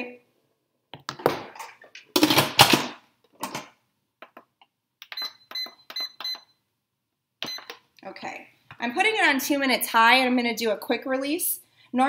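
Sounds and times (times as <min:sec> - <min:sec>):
control panel beeping: 0:05.0 - 0:06.5, 0:07.4 - 0:07.8.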